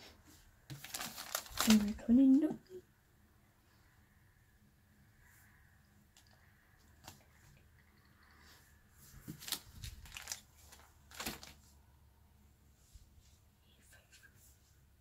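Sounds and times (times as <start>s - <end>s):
plastic pages crinkling: 0.7s - 2.4s, 9.3s - 11.7s.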